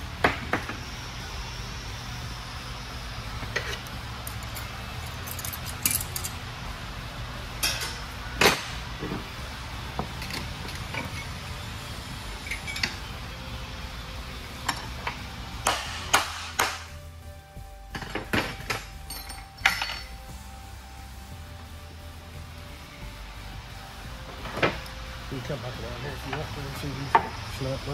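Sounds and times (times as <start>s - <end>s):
metal gears clinking: 3.6s - 6.4s, 12.4s - 13.1s, 18.0s - 20.2s.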